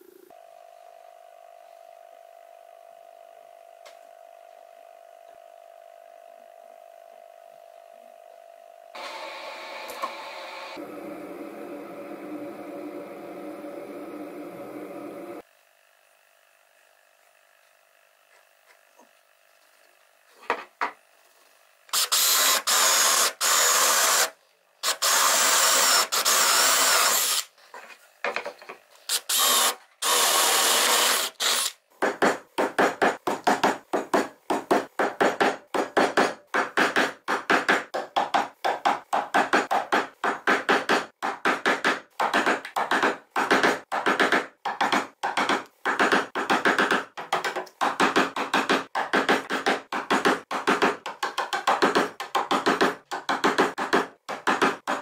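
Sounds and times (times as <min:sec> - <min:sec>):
electric drill boring into wood: 0:09.0 - 0:10.8, 0:21.9 - 0:27.5, 0:29.1 - 0:31.8.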